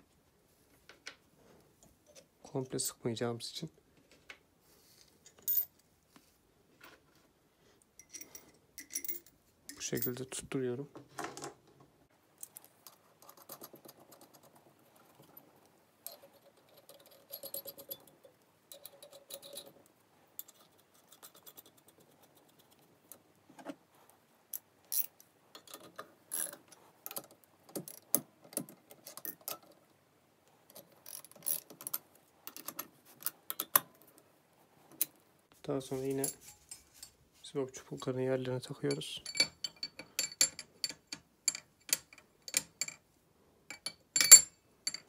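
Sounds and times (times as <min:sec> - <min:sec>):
small metal parts clinking: 0:08.0 - 0:10.4, 0:16.0 - 0:19.8, 0:30.7 - 0:33.8, 0:38.7 - 0:43.0, 0:43.7 - 0:45.0.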